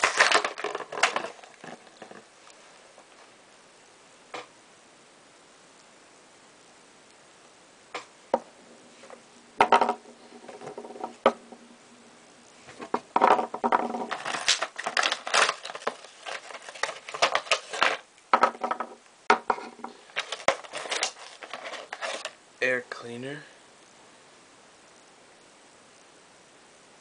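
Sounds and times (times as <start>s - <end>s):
clattering and tapping: 9.6s - 11.4s, 12.7s - 22.3s.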